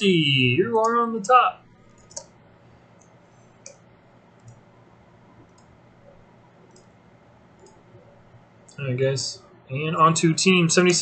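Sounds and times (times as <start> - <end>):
low room hum: 0.0 - 11.0
computer mouse clicks: 1.8 - 3.8, 4.4 - 4.7, 5.4 - 8.8.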